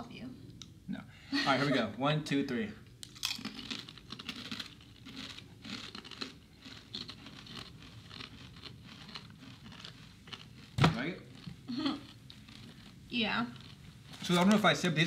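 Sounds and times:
people chewing crunchy chips: 3.0s - 14.6s.

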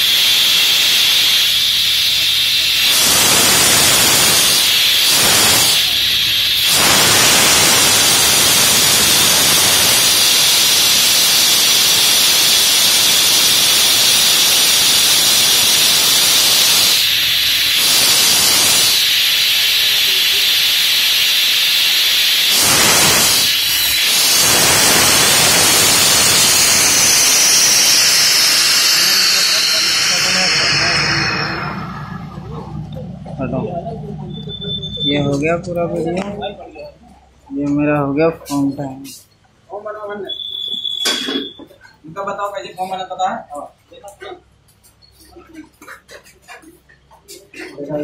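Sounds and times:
compressed air hissing: 0.0s - 32.9s.

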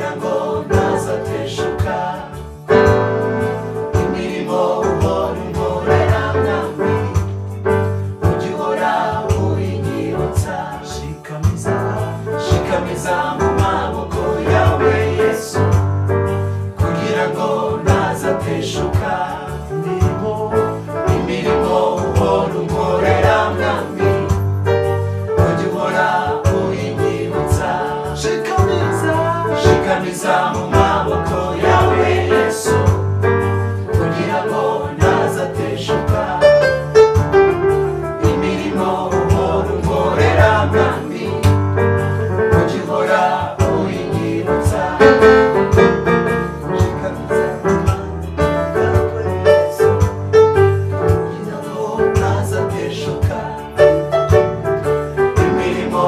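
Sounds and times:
group singing in harmony: 0.0s - 56.0s
electronic keyboard chords: 11.7s - 56.0s.

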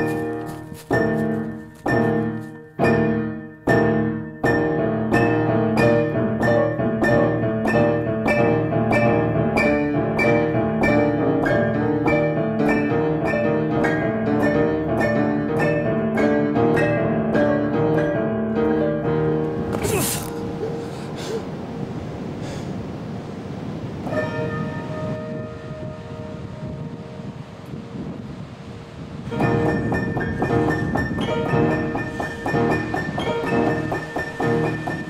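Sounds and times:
piano chords and runs: 0.0s - 22.5s, 23.5s - 35.0s.

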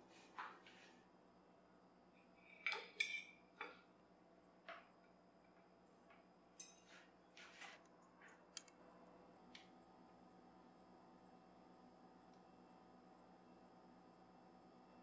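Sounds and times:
metal tongs clinking on ceramic plate: 2.6s - 3.7s, 6.6s - 7.0s.

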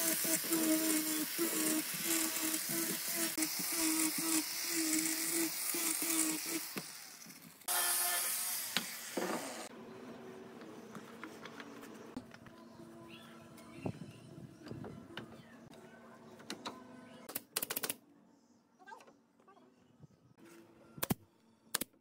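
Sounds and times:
angle grinder sanding wood: 0.0s - 9.7s.

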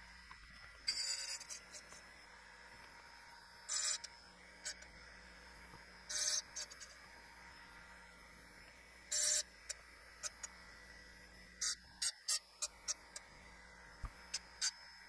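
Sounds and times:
grinding wheel hissing on metal: 3.3s - 14.8s.

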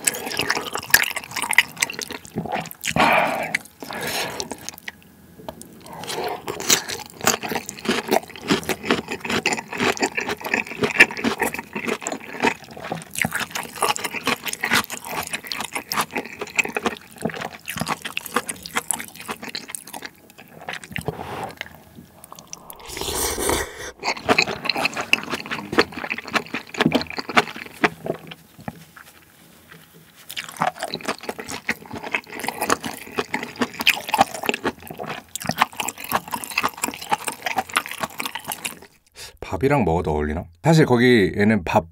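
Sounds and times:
chewing and smacking: 0.0s - 39.1s
wet slurping: 20.7s - 27.6s.

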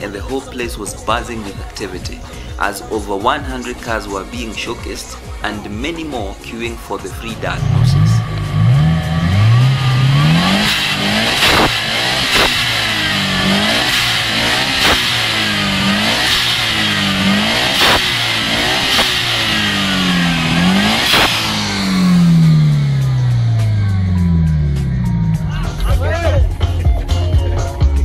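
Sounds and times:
car engine revving: 3.6s - 26.6s
sharp exhaust cracks: 7.5s - 25.9s.

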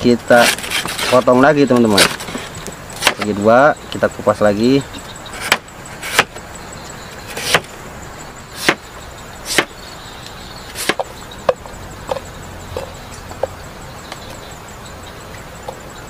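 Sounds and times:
knife chopping stem on bamboo: 5.4s - 6.4s, 7.3s - 7.7s, 8.6s - 8.8s, 9.5s - 9.7s, 10.8s - 11.1s.

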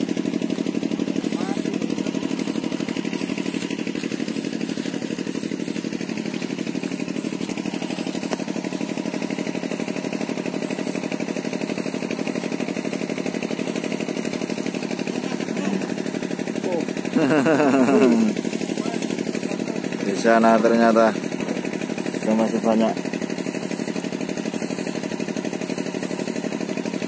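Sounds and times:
small engine running: 0.0s - 27.0s.

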